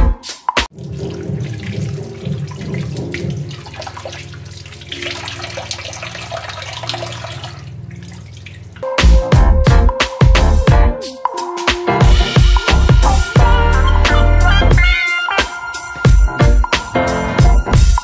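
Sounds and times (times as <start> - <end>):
water splashing over hands: 0.7 - 8.8
tap water running into sink: 0.7 - 8.9.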